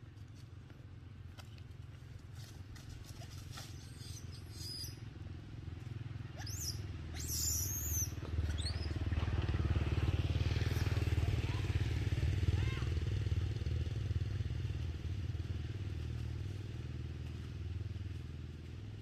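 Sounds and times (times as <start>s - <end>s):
motorcycle engine rumbling: 0.0s - 19.0s
short high-pitched calls: 6.4s - 8.7s.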